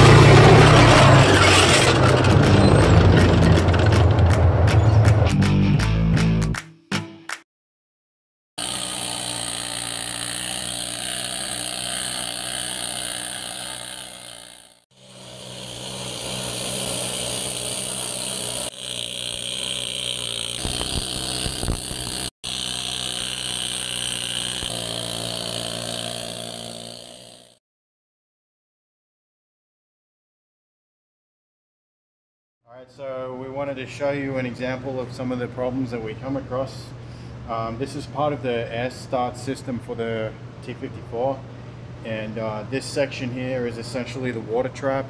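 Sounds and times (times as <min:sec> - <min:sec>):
needle scaler hammering steel: 0:08.6 - 0:27.3.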